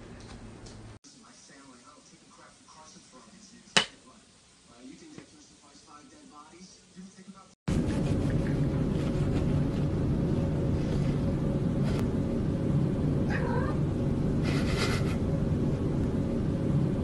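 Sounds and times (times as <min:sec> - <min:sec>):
cat yowling: 0:13.3 - 0:13.8.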